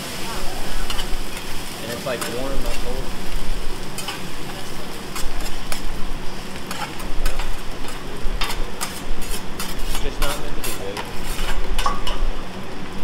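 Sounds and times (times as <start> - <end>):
fried rice sizzling on a griddle: 0.0 - 13.0
metal spatulas scraping and tapping: 4.0 - 4.2, 6.7 - 12.2.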